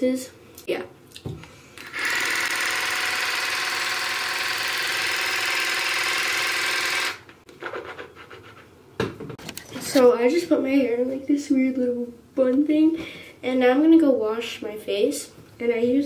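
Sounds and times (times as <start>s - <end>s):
water flosser motor whir: 1.8s - 7.2s.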